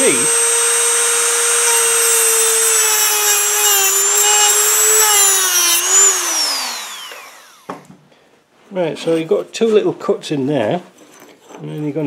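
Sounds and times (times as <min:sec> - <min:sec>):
rotary tool cutting metal: 0:00.0 - 0:07.7.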